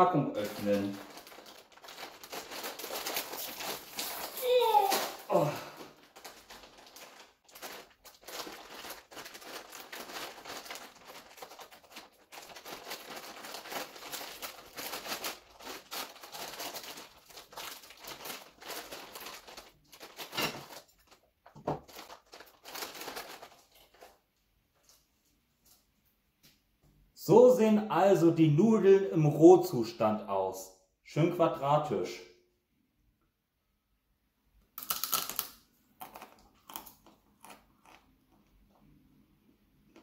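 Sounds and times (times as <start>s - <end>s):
plastic packet crinkling and tearing: 0.3s - 24.2s, 34.8s - 38.0s.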